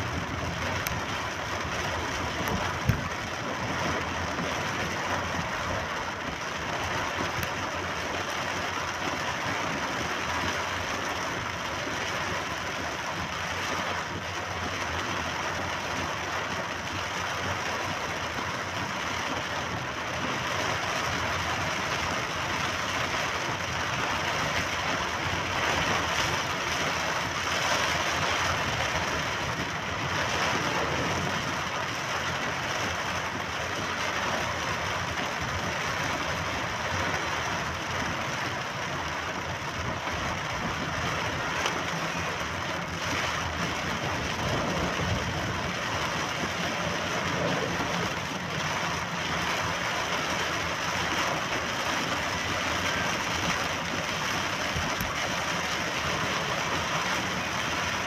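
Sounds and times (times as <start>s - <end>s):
tyres hissing on wet road: 0.0s - 58.0s.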